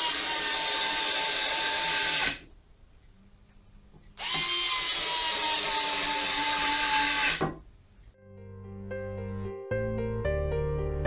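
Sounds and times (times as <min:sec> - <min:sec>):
electric screwdriver motor whining: 0:00.0 - 0:02.4, 0:04.2 - 0:07.4.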